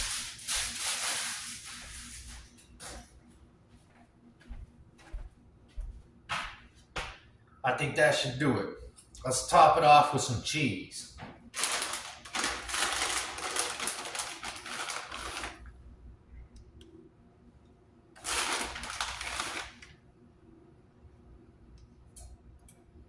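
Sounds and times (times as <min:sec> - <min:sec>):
plastic bag crinkling: 0:11.5 - 0:15.7, 0:18.2 - 0:20.0.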